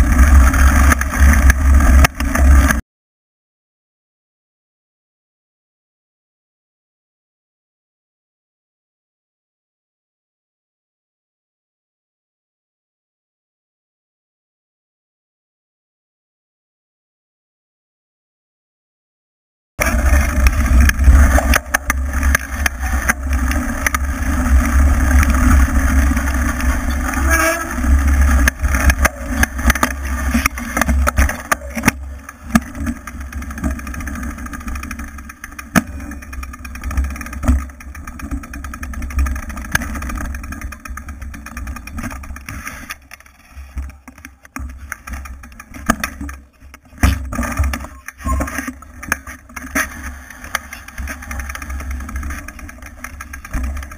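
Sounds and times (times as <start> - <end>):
bike rattles and knocks: 0.0 - 2.8, 19.8 - 53.9.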